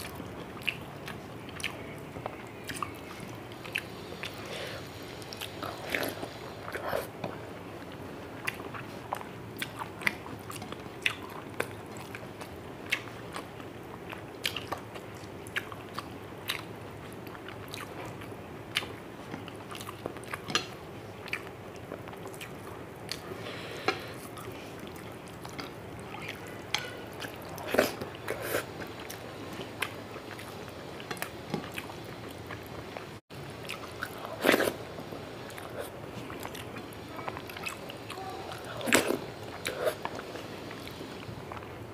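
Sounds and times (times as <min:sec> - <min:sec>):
low background noise: 0:00.0 - 0:41.9
chewing and mouth smacks: 0:35.5 - 0:41.7.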